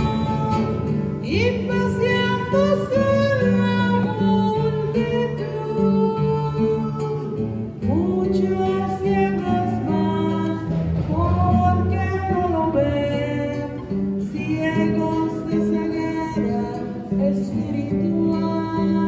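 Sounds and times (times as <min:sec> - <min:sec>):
acoustic guitar: 0:00.0 - 0:19.0
person singing a hymn: 0:00.0 - 0:19.0.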